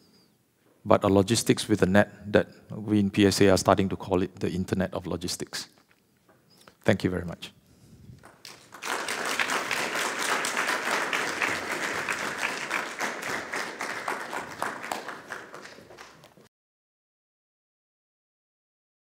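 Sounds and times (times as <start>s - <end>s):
audience applauding: 8.2s - 16.5s.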